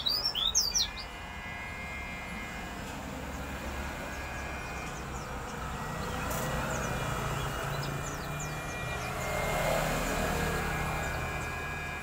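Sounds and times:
bird chirping: 0.0 - 1.2, 3.2 - 9.6, 10.2 - 12.0
vehicle engine rumble: 1.0 - 12.0.

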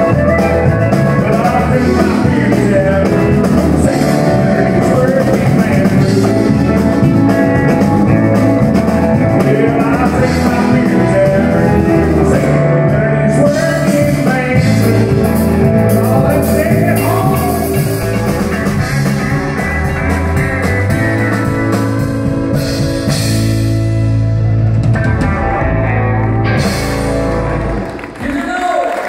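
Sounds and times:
man singing through pa: 0.0 - 18.2
electric guitar: 0.0 - 28.5
keyboard: 0.0 - 28.8
drums: 0.0 - 29.0.

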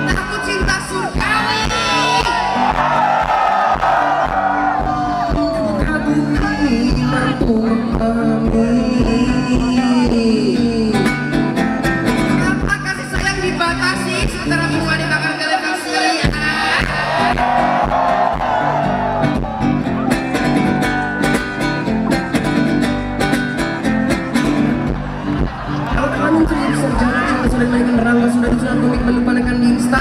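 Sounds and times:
acoustic guitar: 0.0 - 15.3, 16.2 - 30.0
person singing: 4.5 - 11.4.

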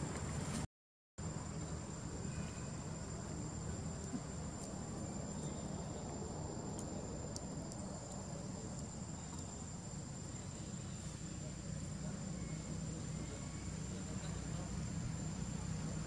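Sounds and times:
faint ticks: 6.7 - 9.5.

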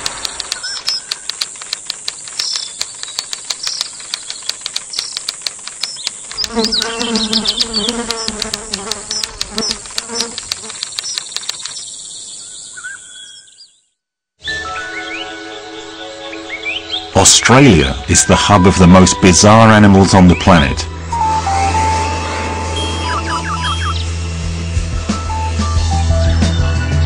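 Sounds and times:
low insect buzz: 0.0 - 13.2
insect clicks and chirps: 0.0 - 13.8
high-pitched insect shrill: 6.4 - 11.2, 21.4 - 24.2
music with sustained tones: 14.4 - 27.0.

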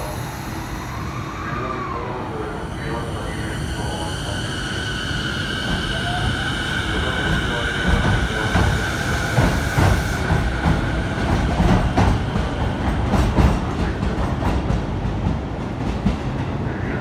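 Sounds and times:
train rumble: 0.0 - 17.0
train wheels clacking over joints: 7.3 - 16.3.

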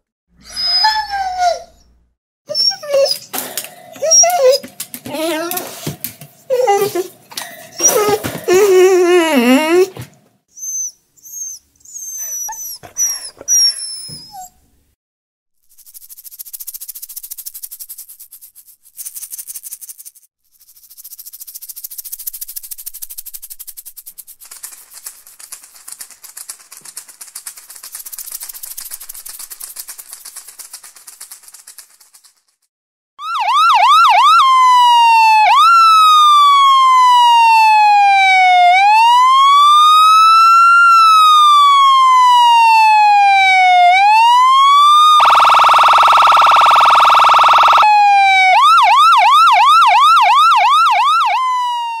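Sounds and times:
shaker rattling: 15.6 - 32.7
ambulance siren: 33.2 - 52.0.

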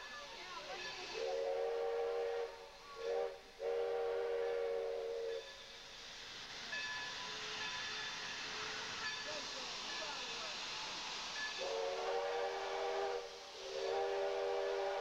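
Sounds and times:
steam hissing: 0.0 - 15.0
steam locomotive whistle blasts: 1.1 - 6.0, 11.5 - 15.0.

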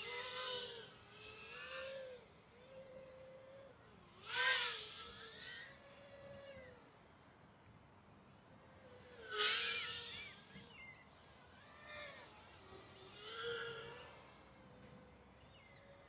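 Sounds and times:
drone motors whining: 9.0 - 16.0.

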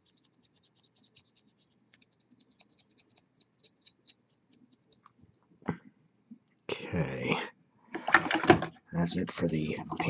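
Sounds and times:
paintbrush scratching on metal: 0.0 - 5.1.

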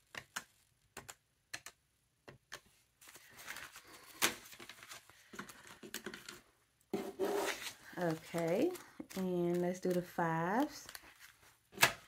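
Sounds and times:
banknotes rustling: 3.0 - 12.0
sharp paper snap: 11.7 - 12.0.

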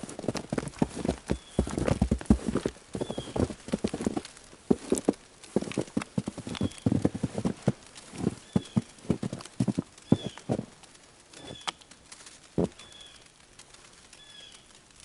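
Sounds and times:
footsteps crunching through snow: 0.0 - 13.0.

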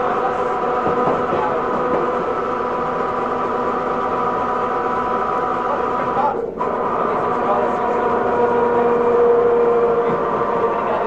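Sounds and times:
train wheels on rails: 0.0 - 4.4, 7.3 - 11.0
electric train motor whine: 0.0 - 11.0.

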